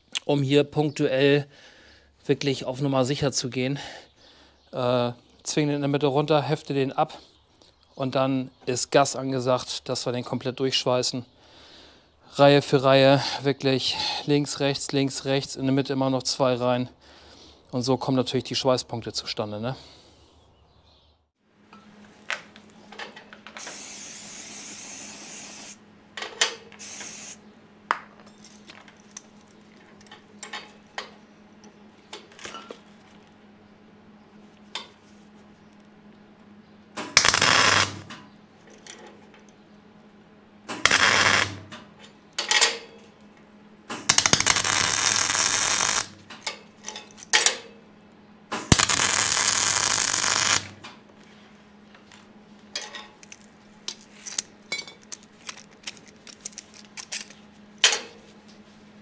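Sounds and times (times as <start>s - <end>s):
aerosol spray hissing: 23.6s - 25.8s, 26.8s - 27.4s
welder arc crackling: 37.0s - 38.1s, 40.8s - 41.6s, 44.1s - 46.2s, 48.6s - 50.8s.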